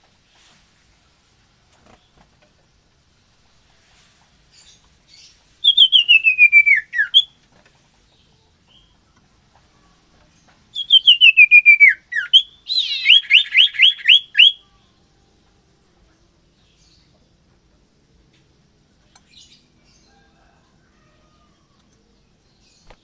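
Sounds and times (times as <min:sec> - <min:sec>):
bird singing: 0:04.6 - 0:07.4, 0:08.1 - 0:15.4, 0:19.0 - 0:23.0.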